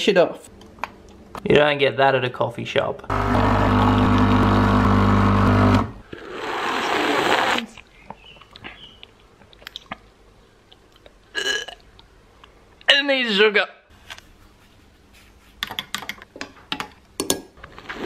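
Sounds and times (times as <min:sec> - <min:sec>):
coffee machine pump humming: 0:03.1 - 0:06.0.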